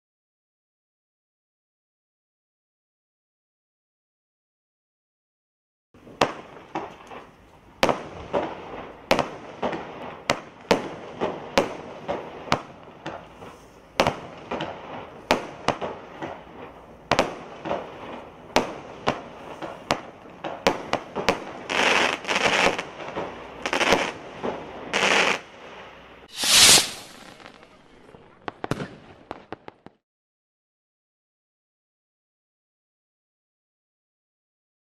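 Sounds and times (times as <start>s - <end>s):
firework bangs with crackling: 6.0s - 30.0s
loud rushing burst: 26.3s - 27.4s.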